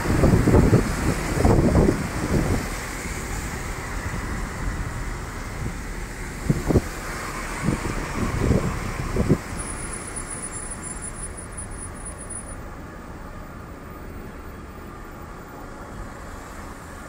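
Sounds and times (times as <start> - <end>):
tyres hissing on road: 0.0 - 17.0.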